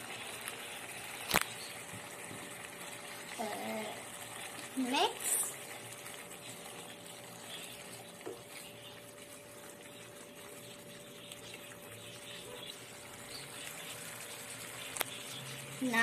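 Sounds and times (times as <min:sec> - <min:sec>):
food hissing and bubbling in pan: 0:00.0 - 0:16.0.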